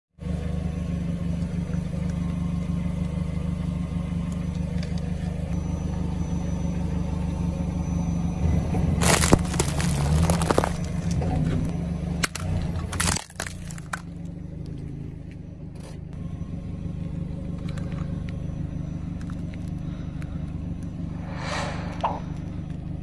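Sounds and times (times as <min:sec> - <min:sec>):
car engine idling: 0:00.2 - 0:23.0
phone crunching under tyre: 0:09.0 - 0:11.2, 0:12.2 - 0:14.2.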